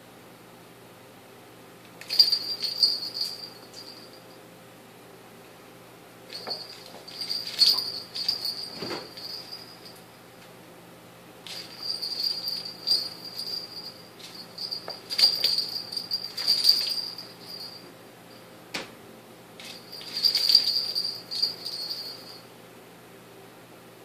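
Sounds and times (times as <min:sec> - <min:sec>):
cat toy bell jingling: 0:02.0 - 0:04.3, 0:06.3 - 0:10.1, 0:11.5 - 0:17.9, 0:19.6 - 0:22.4.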